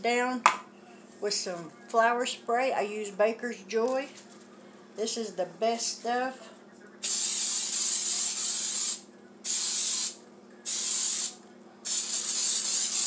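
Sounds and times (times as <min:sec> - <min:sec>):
aerosol spray hissing: 0:07.0 - 0:13.0.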